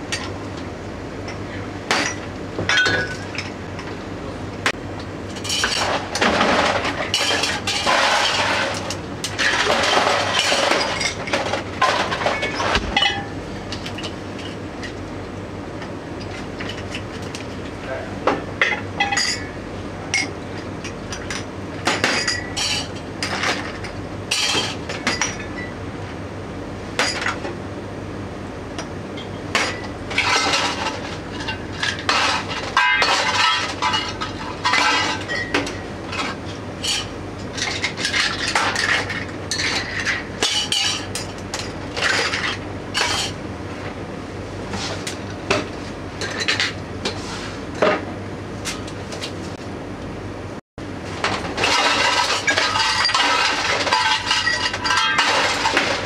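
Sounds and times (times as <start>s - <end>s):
steady low hum: 0.0s - 56.0s
glasses and dishes clinking: 1.3s - 3.6s, 18.6s - 19.5s, 21.1s - 25.7s, 31.4s - 35.8s, 51.6s - 56.0s.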